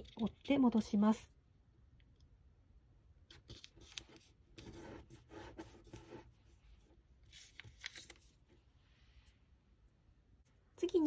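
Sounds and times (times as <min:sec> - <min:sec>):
paper rustling as it is folded: 0:03.4 - 0:08.6.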